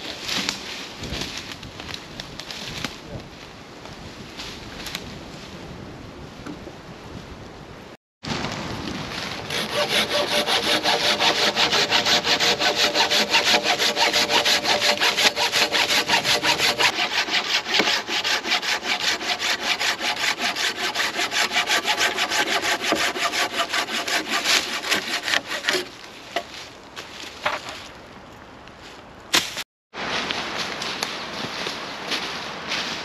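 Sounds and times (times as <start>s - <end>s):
hand saw cutting wood: 9.5s - 26.0s.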